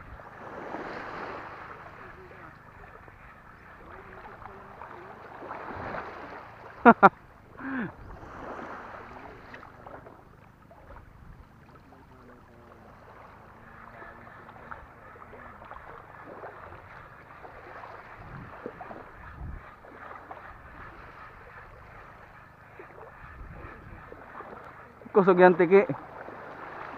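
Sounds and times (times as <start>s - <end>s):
wind on microphone: 0.0s - 4.7s, 15.6s - 24.6s
small waves lapping on pebbles: 0.0s - 23.2s, 24.0s - 26.9s.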